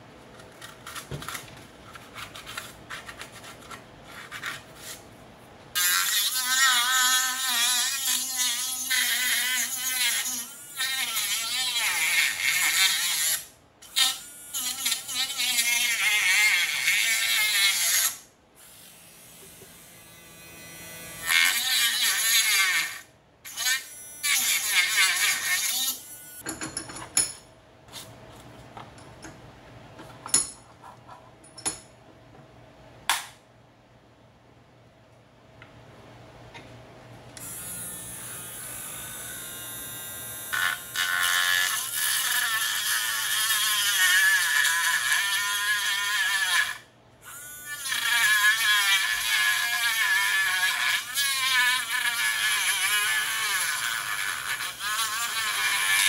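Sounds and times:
rotary tool cutting plastic: 5.8s - 18.3s, 21.0s - 26.0s, 39.7s - 56.0s.

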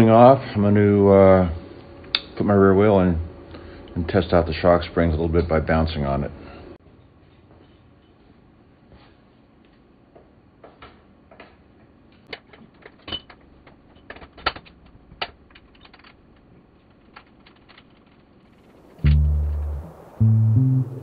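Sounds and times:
metallic clicks and knocks: 12.3s - 19.7s.

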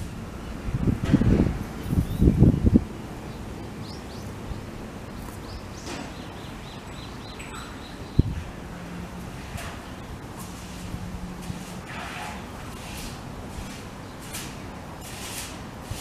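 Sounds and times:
small bird chirping: 1.8s - 2.5s, 3.3s - 8.4s.

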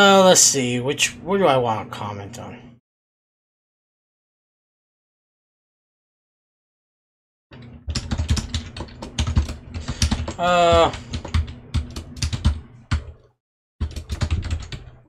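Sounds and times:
computer keyboard typing: 7.8s - 15.0s.

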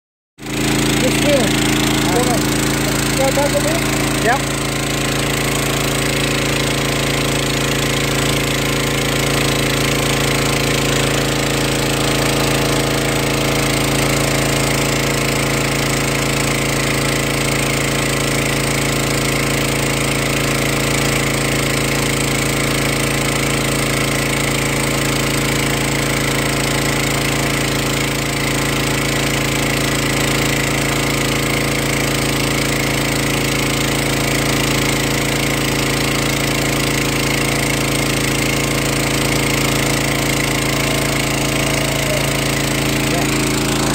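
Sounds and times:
pump motor hum: 0.4s - 43.9s.

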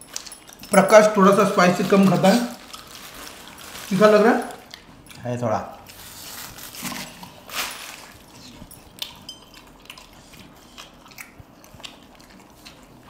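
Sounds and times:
wet chewing and mouth smacks: 2.6s - 3.6s, 4.6s - 5.2s, 5.8s - 13.0s.

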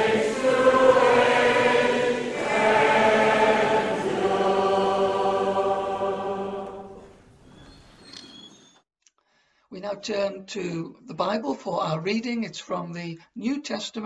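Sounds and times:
congregation singing a hymn: 0.0s - 7.1s.

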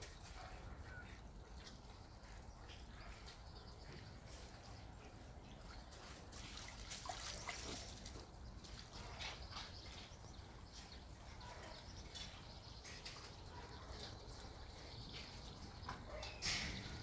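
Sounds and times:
ducks splashing in water: 5.7s - 10.0s.

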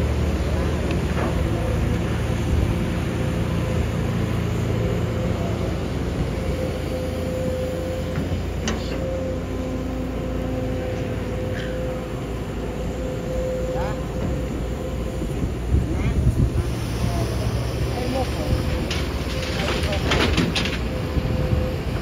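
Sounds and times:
excavator diesel engine under load: 0.0s - 22.0s
high-pitched whine: 4.6s - 18.7s.

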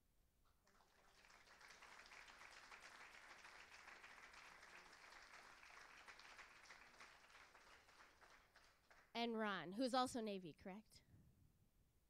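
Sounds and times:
audience applauding: 0.6s - 9.1s.

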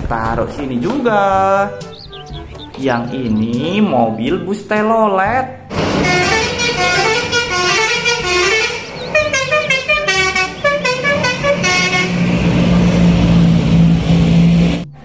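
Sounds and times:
multi-tone air horn tune: 5.7s - 12.4s
bus engine drone: 5.7s - 15.0s.

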